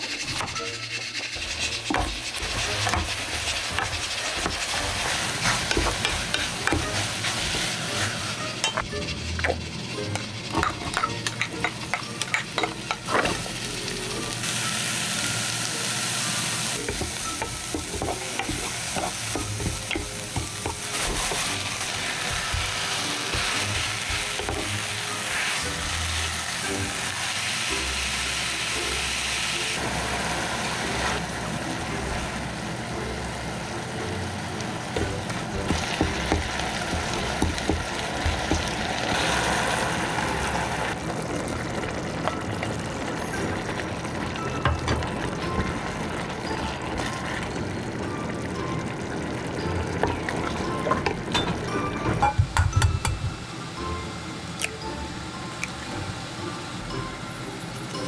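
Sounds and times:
utensil knocking and scraping pan: 0:00.0 - 0:07.6, 0:08.6 - 0:13.4, 0:16.9 - 0:24.8, 0:35.0 - 0:39.1
food sizzling in a pan: 0:00.0 - 0:58.0.

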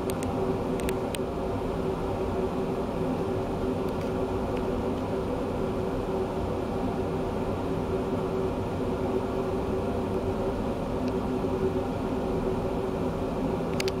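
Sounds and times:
constant rushing noise: 0:00.0 - 0:14.0
steady mechanical hum: 0:00.0 - 0:14.0.

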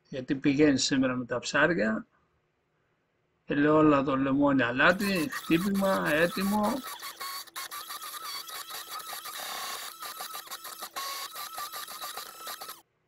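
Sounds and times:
whisk whirring and rattling: 0:04.9 - 0:12.9.

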